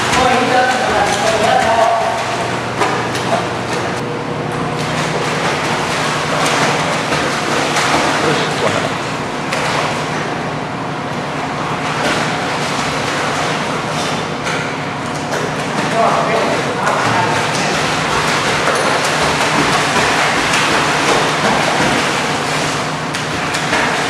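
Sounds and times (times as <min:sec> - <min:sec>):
dog splashing in water: 0:04.8 - 0:08.6, 0:11.8 - 0:24.0.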